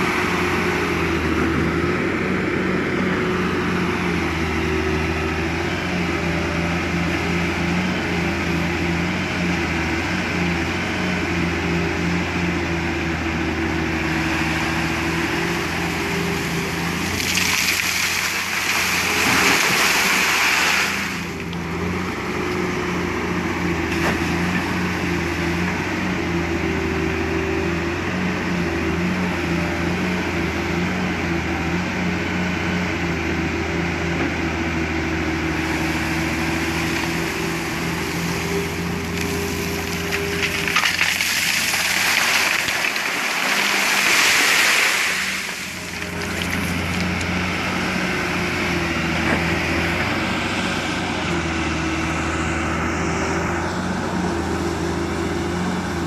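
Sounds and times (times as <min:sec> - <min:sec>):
heavy diesel engines running: 0:00.0 - 0:56.0
gravel dumped into truck bed: 0:17.0 - 0:21.3, 0:39.1 - 0:47.1.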